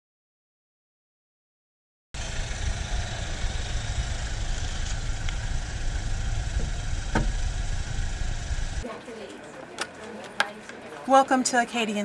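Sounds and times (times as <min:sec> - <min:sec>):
car engine idling: 0:02.2 - 0:08.8.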